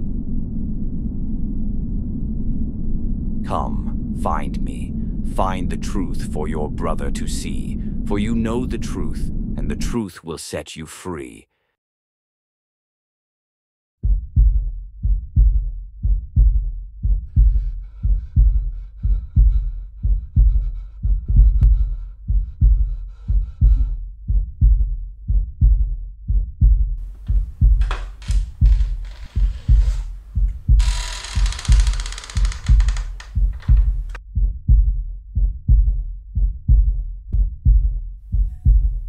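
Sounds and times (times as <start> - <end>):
heartbeat thumps: 14.0 - 39.0.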